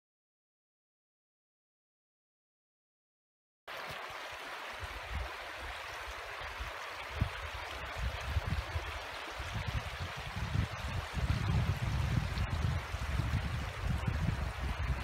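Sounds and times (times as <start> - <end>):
stream running over rocks: 3.7 - 15.0
wind buffeting microphone: 6.6 - 15.0.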